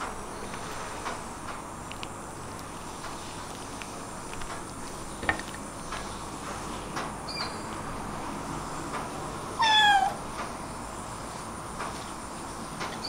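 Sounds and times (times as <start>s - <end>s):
kitten meowing: 9.6s - 10.2s.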